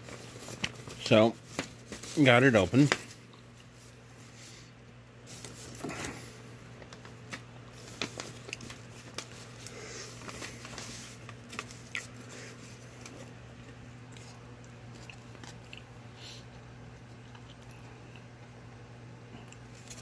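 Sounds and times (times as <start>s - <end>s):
paper crinkling and rustling: 0.0s - 4.6s, 5.2s - 15.6s, 19.6s - 20.0s
steady low hum: 0.0s - 20.0s.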